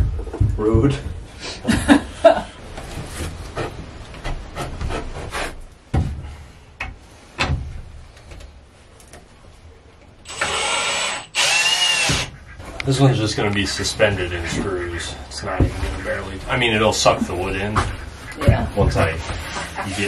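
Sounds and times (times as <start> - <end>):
cordless drill driving a screw: 10.3 - 12.3.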